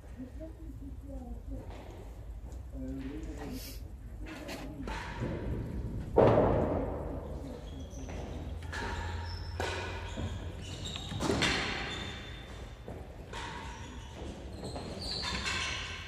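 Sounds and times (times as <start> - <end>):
ball knock echoing in court: 4.8 - 10.4.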